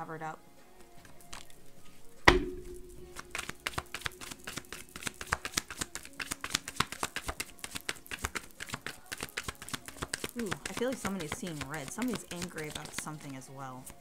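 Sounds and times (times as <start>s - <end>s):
sharp thump: 2.3s - 3.4s
cards being shuffled: 3.0s - 14.0s.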